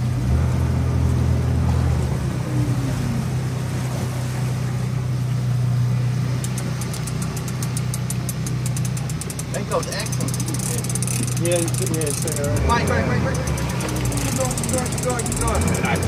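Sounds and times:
boat engine humming: 0:00.0 - 0:16.0
fast even ticking: 0:06.4 - 0:16.0.

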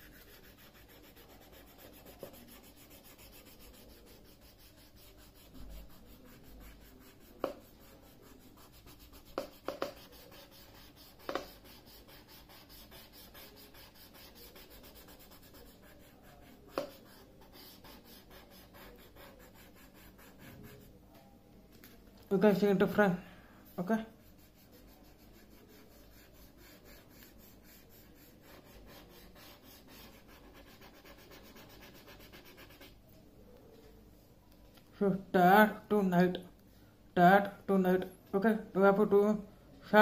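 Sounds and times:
pencil rubbing on paper: 0:00.0 - 0:21.0, 0:24.1 - 0:33.0.

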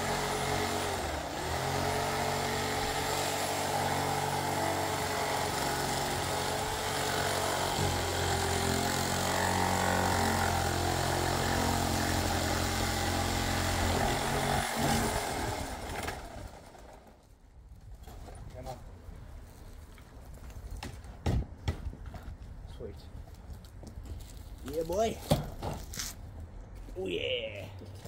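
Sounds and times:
reciprocating saw running: 0:00.0 - 0:16.8.

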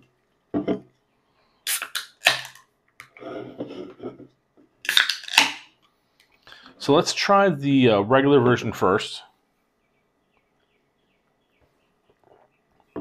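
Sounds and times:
can tab popping: 0:01.7 - 0:03.1, 0:04.8 - 0:05.7.

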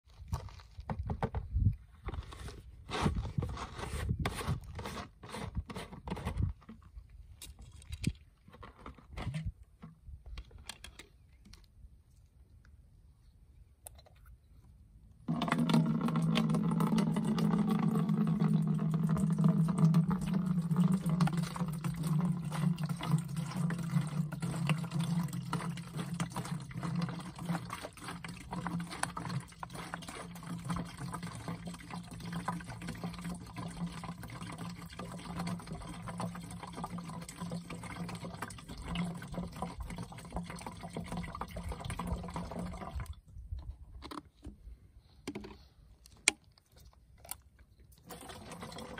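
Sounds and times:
liquid pouring into plastic drum: 0:15.3 - 0:43.2, 0:47.9 - 0:48.9.

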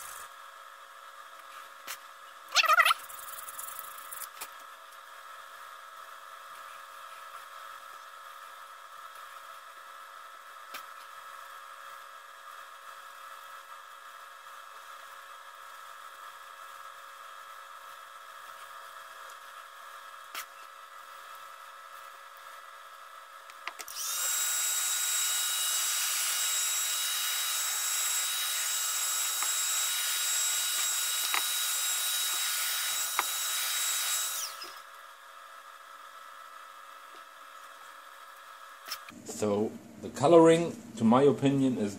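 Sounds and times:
electric drill polishing wood: 0:00.0 - 0:00.3, 0:23.8 - 0:34.9.

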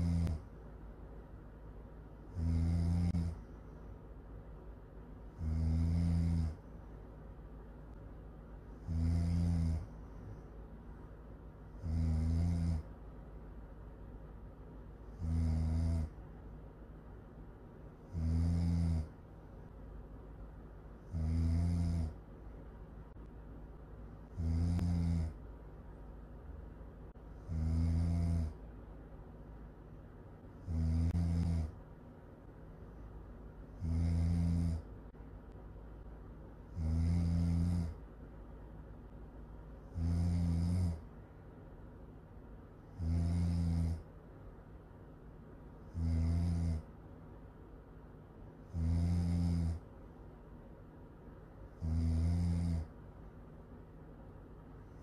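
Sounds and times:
woman snoring: 0:00.0 - 0:00.5, 0:02.3 - 0:03.6, 0:05.3 - 0:06.6, 0:08.8 - 0:10.4, 0:11.7 - 0:12.9, 0:15.1 - 0:16.2, 0:18.0 - 0:19.2, 0:21.0 - 0:22.2, 0:24.3 - 0:25.4, 0:27.4 - 0:28.6, 0:30.6 - 0:31.8, 0:33.8 - 0:34.9, 0:36.7 - 0:38.0, 0:39.9 - 0:41.1, 0:42.9 - 0:44.1, 0:45.8 - 0:46.9, 0:48.6 - 0:49.8, 0:51.8 - 0:52.9.

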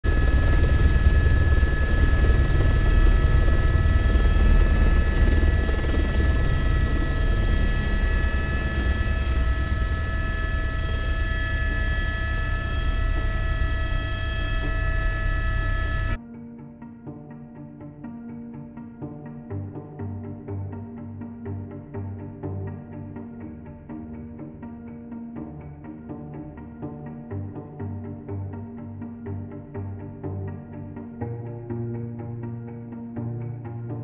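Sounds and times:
helicopter rotor rumble: 0:00.1 - 0:16.2
high steady whining tones: 0:00.1 - 0:16.2.

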